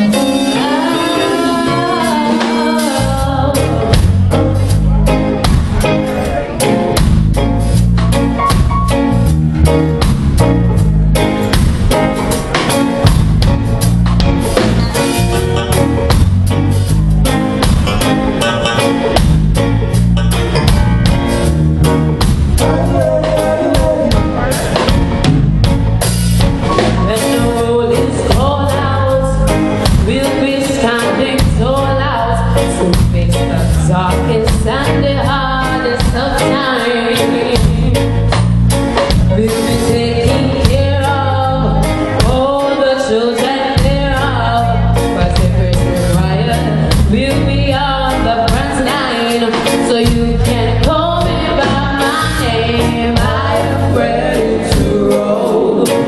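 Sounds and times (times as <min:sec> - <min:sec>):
woman singing into microphone: 0:00.0 - 0:04.3, 0:26.8 - 0:38.4, 0:39.2 - 0:56.0
drum kit: 0:00.0 - 0:56.0
electric guitars: 0:00.0 - 0:56.0
keyboard: 0:00.0 - 0:56.0.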